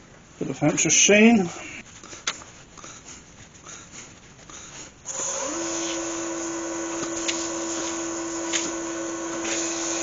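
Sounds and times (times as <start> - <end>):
lathe motor whine: 5.1 - 10.0.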